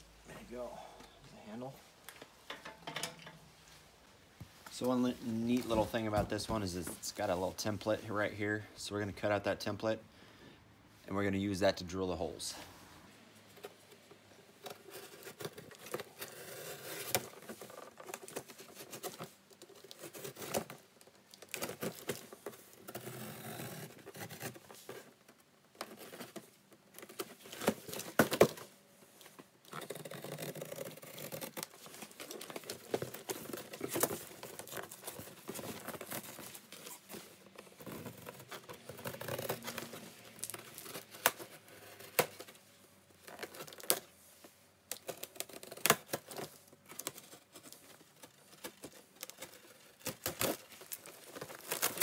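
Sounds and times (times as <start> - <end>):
cardboard rustling: 13.4 - 52.0.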